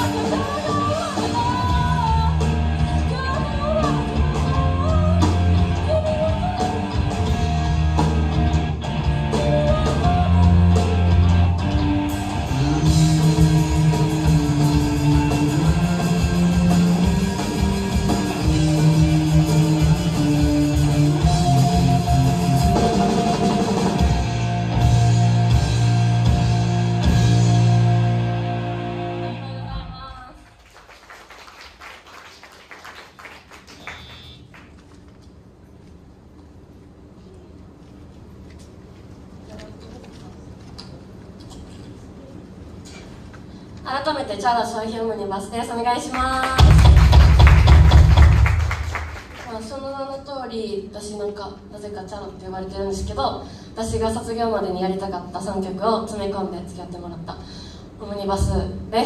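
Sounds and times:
rock band playing: 0.0s - 29.9s, 46.6s - 49.3s.

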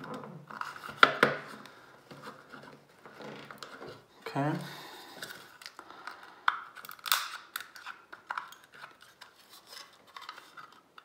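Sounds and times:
plastic scrapes and clicks: 5.2s - 11.0s.

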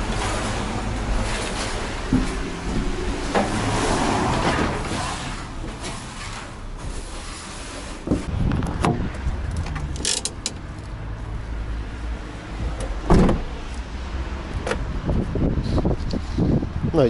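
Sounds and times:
van door shutting: 12.8s - 13.6s.

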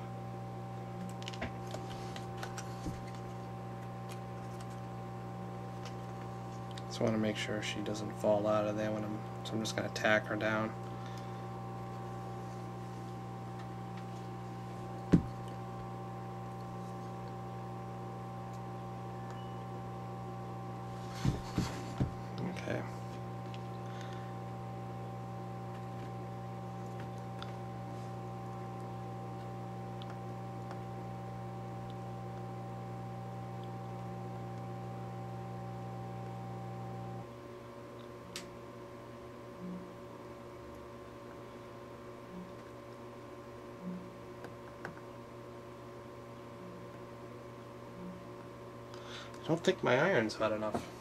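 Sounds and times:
electrical hum with tones: 0.0s - 51.0s.

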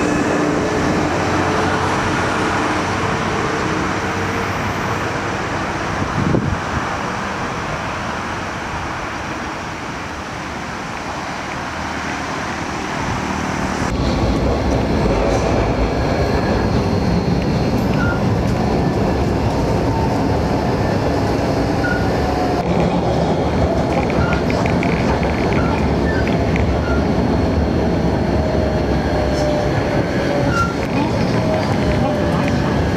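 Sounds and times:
tram wheels rumbling on rails: 0.0s - 32.9s.

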